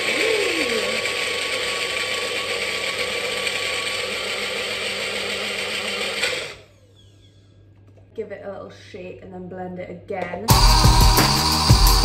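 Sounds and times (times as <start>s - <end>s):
blender motor running: 0.0s - 7.5s, 10.5s - 12.0s.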